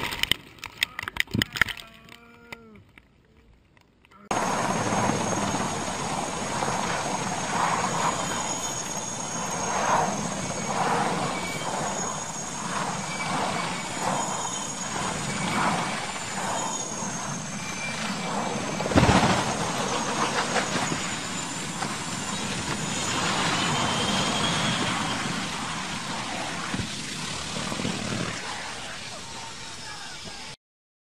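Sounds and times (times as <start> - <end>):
helicopter rotor noise: 4.3 - 30.6
helicopter turbine whine: 4.3 - 30.6
loud crash: 17.6 - 28.5.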